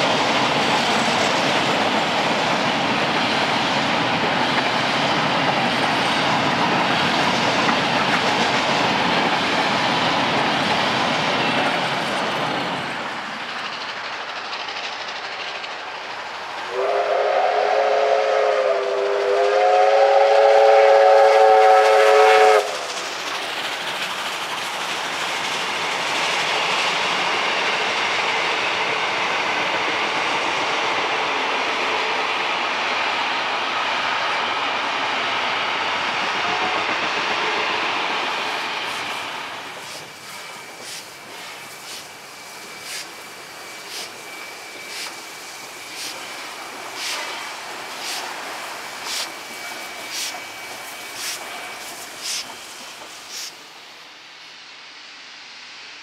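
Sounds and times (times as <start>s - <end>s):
train wheels clicking over rail joints: 0.0s - 53.6s
steam locomotive whistle: 16.7s - 22.9s, 36.4s - 37.6s.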